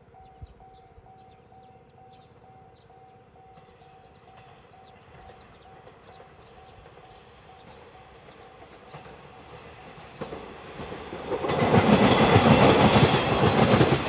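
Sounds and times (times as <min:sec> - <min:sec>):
birds chirping: 0:00.0 - 0:09.2.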